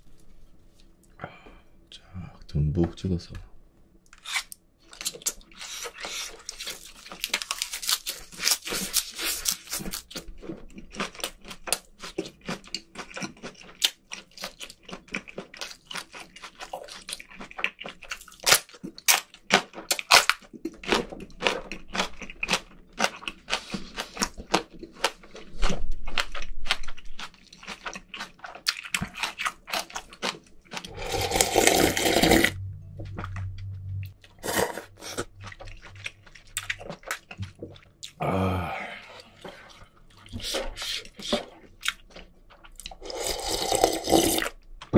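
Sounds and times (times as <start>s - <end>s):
close chewing with mouth clicks: 4.9s - 32.4s, 33.0s - 38.2s, 39.2s - 44.9s
gulping slurp of broth: 30.9s - 32.6s, 42.9s - 44.5s.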